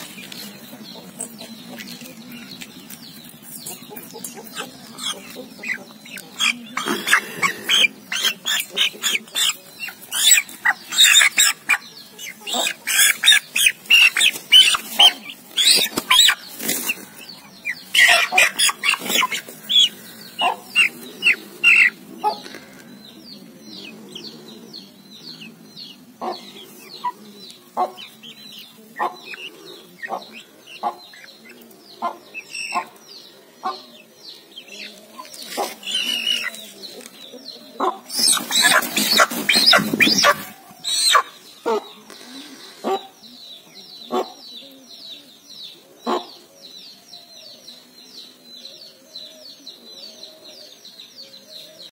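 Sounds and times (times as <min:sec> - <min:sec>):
hens clucking: 0:00.0 - 0:24.7, 0:25.4 - 0:43.3.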